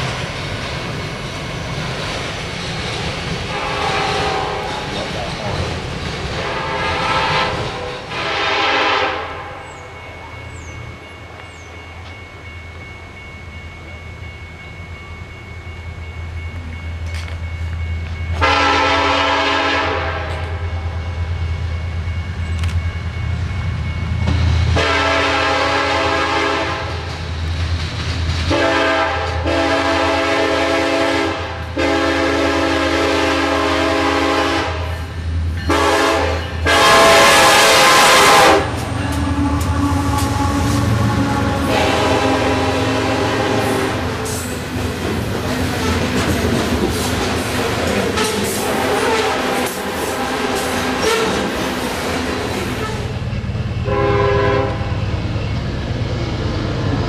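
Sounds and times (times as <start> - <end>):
low rumble of train: 0.0 - 57.0
locomotive air horn blasts: 3.5 - 4.8, 6.4 - 9.6, 18.4 - 20.6, 24.8 - 27.0, 28.5 - 35.0, 35.7 - 44.4, 48.1 - 51.5, 53.8 - 54.9.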